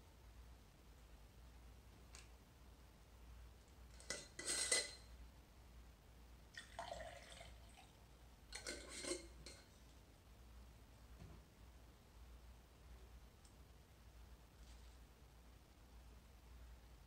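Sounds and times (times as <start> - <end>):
glass jar and metal lid clinking: 4.0 - 5.1, 8.5 - 9.7
water trickling into a glass vase: 6.5 - 9.7.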